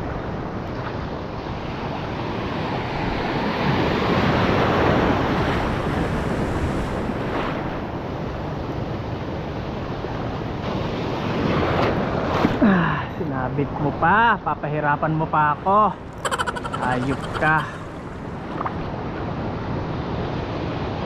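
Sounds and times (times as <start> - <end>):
sea waves washing in: 0.2 - 8.5, 15.9 - 21.0.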